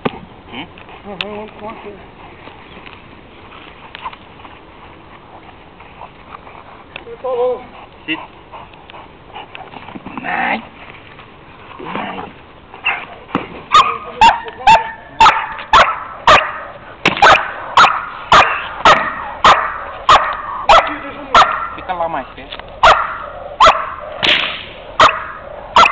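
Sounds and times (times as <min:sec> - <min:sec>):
dog barking hard and fast: 0:12.8 - 0:21.9, 0:22.8 - 0:24.2, 0:24.8 - 0:25.9.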